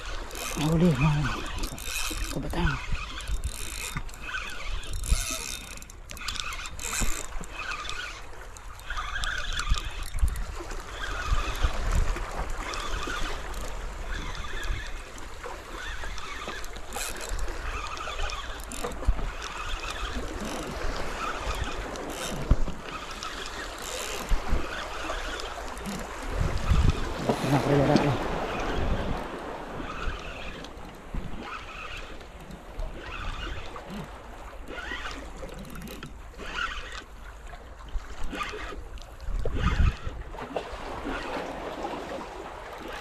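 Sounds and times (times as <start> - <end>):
rod and reel knocks: 0.0 - 34.1, 34.7 - 37.2
small waves lapping on rocks: 0.0 - 43.0
wind rumbling on microphone: 8.9 - 35.0, 37.9 - 43.0.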